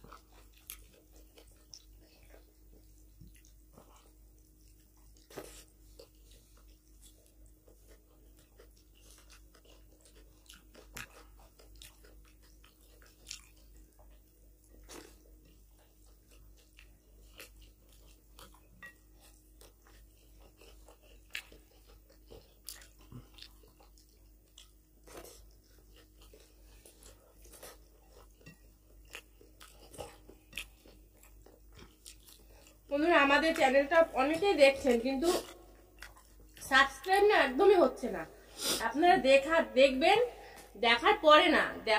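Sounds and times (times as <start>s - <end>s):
fingers mixing rice on plates: 0.0s - 38.0s
chewing and wet mouth sounds: 0.0s - 41.9s
faint steady hum: 0.0s - 41.9s.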